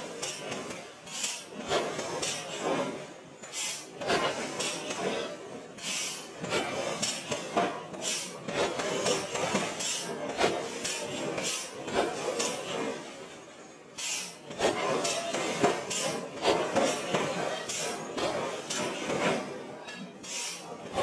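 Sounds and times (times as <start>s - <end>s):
metal scraping and rasping: 14.0s - 21.0s.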